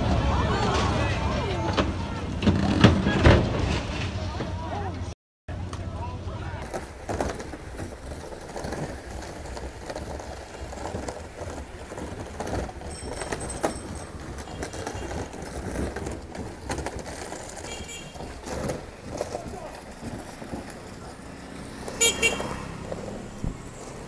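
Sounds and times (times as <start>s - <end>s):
street traffic: 0.0s - 24.0s
fridge scraping along asphalt: 6.6s - 24.0s.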